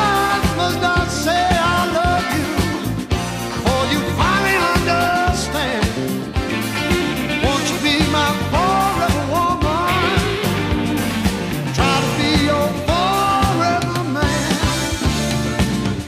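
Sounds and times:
person singing: 0.0s - 2.9s, 3.5s - 6.3s, 7.4s - 10.8s, 11.6s - 15.4s
drum beat and bass: 0.0s - 16.0s.

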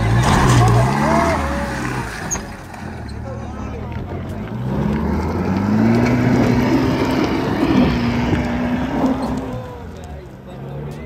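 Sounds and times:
engine revving hard: 0.0s - 2.4s, 4.5s - 9.9s
wheels spinning throwing dirt: 0.0s - 11.0s.

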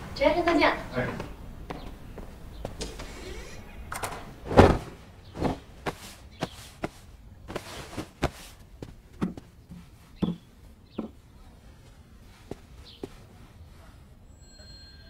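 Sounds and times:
fabric rustling: 4.4s - 10.2s
heavy thud: 4.5s - 6.0s.

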